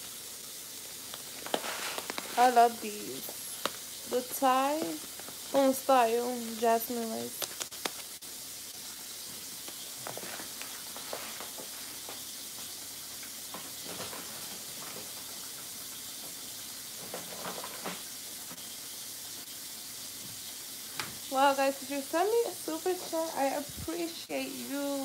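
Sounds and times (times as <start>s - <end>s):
steady low hiss: 0.0s - 14.9s
kitchen knocks and rustles: 13.4s - 18.6s.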